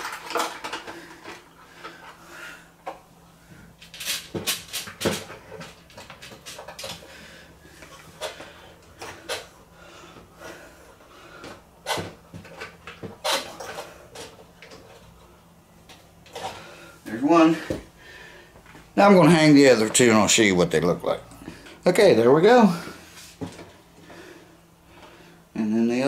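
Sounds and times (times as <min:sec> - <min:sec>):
plastic baskets clicking and knocking: 0:00.0 - 0:02.0, 0:03.9 - 0:07.1.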